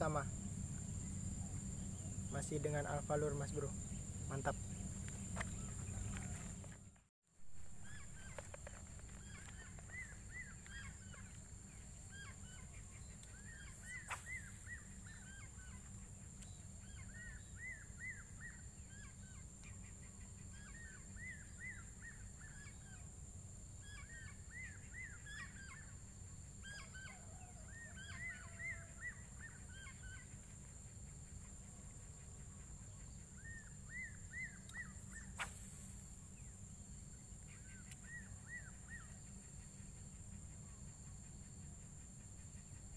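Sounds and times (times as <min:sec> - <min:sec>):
bird chirping in rapid phrases: 0:00.0 - 0:06.6, 0:07.8 - 0:23.1
low steady rumble: 0:00.0 - 0:06.8.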